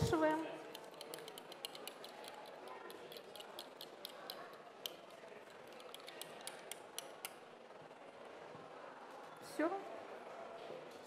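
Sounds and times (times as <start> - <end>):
spoon clicking against glass bowl: 0.8 - 5.1.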